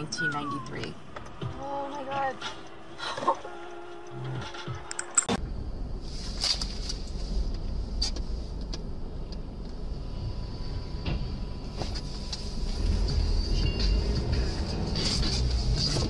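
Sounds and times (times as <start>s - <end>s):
car driving rumble inside cabin: 5.4s - 16.0s.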